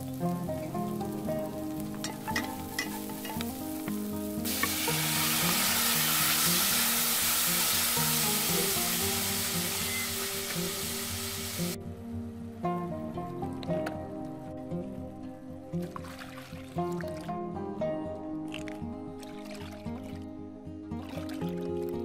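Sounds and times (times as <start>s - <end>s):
food sizzling in hot oil: 0.0s - 11.8s
soft background music: 0.0s - 22.0s.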